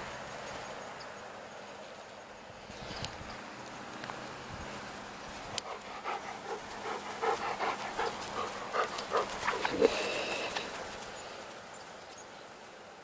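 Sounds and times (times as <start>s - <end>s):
dog panting: 5.6s - 10.9s
puppy noises: 5.6s - 10.9s.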